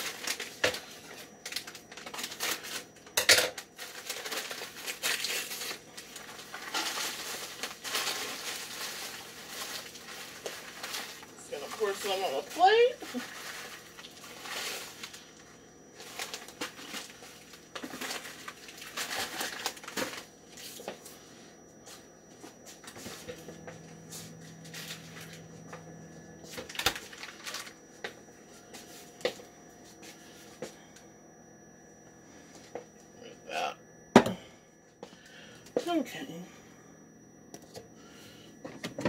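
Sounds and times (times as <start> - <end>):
plastic pouch crinkling and tearing: 3.8 - 11.2, 18.0 - 20.0, 26.7 - 27.7.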